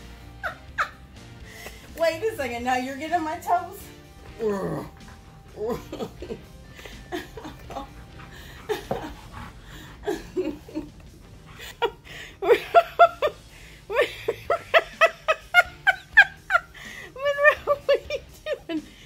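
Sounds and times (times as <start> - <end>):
woman laughing: 0.4 - 1.0, 5.5 - 19.0.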